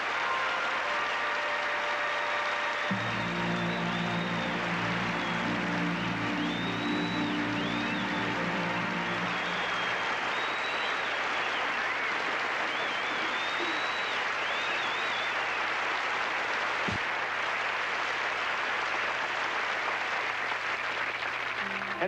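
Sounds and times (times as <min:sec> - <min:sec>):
audience applauding: 0:00.0 - 0:22.0
whistles: 0:00.2 - 0:15.9.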